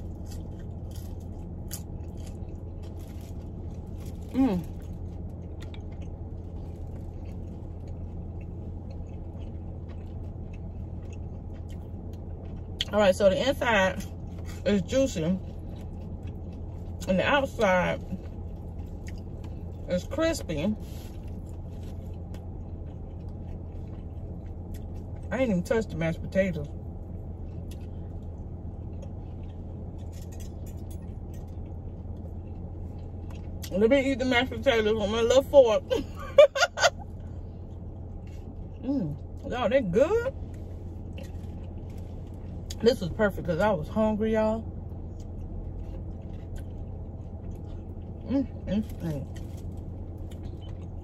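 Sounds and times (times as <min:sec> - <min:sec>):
person chewing: 0:00.0 - 0:12.9, 0:15.4 - 0:20.2, 0:20.8 - 0:25.3, 0:26.8 - 0:33.7, 0:40.4 - 0:42.8, 0:44.9 - 0:51.0
small clicks of eating: 0:00.0 - 0:13.1, 0:27.4 - 0:33.8, 0:45.0 - 0:51.0
crunching of fried chicken: 0:00.0 - 0:25.8, 0:26.6 - 0:33.8, 0:44.6 - 0:51.0
car air conditioning hum: 0:00.0 - 0:51.0.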